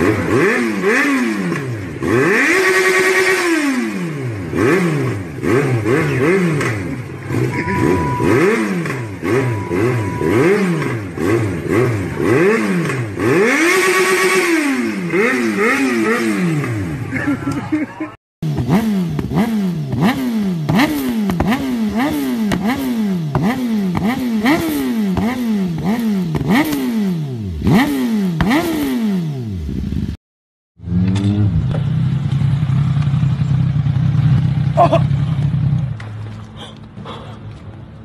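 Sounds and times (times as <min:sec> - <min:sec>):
motorcycle throttle revs: 0:00.0 - 0:17.8, 0:18.4 - 0:30.2, 0:30.8 - 0:37.8
motorcycle engine idling: 0:31.6 - 0:36.6.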